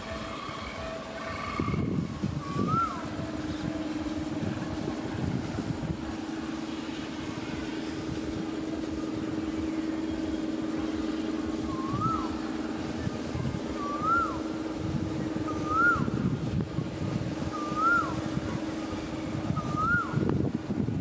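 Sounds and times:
diesel locomotive engine droning: 0.0 - 21.0.

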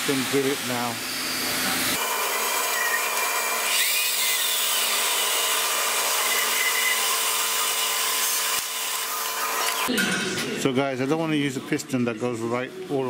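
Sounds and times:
hiss of drill cutting: 0.0 - 9.9
lathe motor whine: 0.0 - 9.9.

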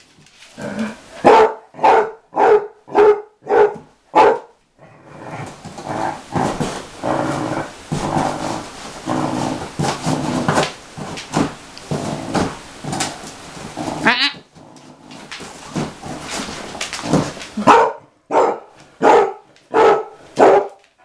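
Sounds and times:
dog barking: 1.2 - 4.6, 17.6 - 20.8.

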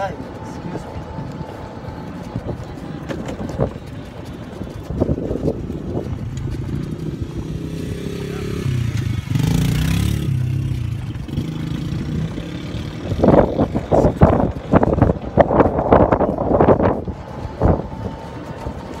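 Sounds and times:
golf cart motor running: 2.5 - 9.8.

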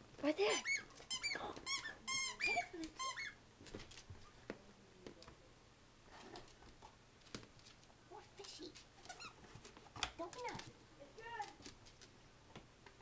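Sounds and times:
squeaky dog toy squeaking: 0.4 - 3.4
clicks and taps on hard floor: 6.4 - 10.7.

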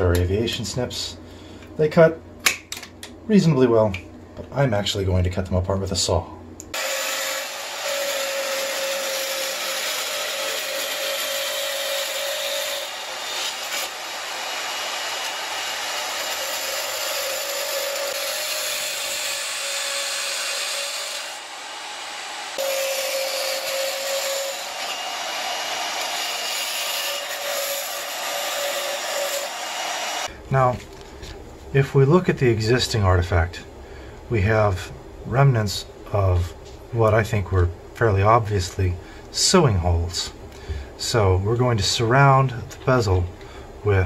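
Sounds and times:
band saw cutting metal: 6.7 - 30.3.

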